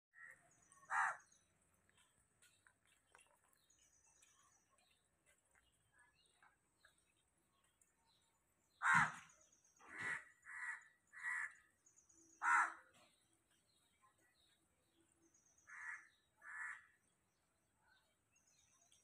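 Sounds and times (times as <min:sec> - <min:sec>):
crow cawing: 0:00.9 - 0:01.2, 0:08.8 - 0:09.2, 0:09.9 - 0:11.6, 0:12.4 - 0:12.8, 0:15.7 - 0:16.9.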